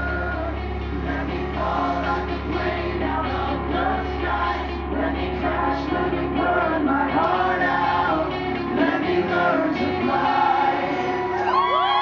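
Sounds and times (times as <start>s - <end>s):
crowd whooping and cheering: 0.0s - 0.6s, 10.8s - 12.0s
man singing lead vocal: 0.0s - 11.8s
bass: 0.0s - 12.0s
electric guitar: 0.0s - 12.0s.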